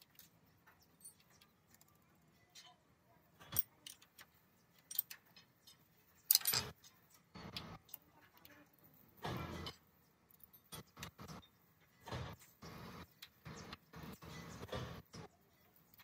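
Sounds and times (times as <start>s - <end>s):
clinks and knocks on metal parts: 0.0s - 2.8s, 3.4s - 8.6s.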